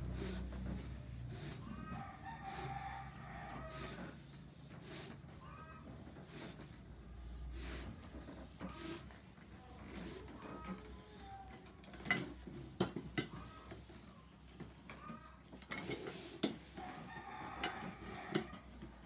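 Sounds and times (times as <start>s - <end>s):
chickens clucking: 13.3s - 15.4s.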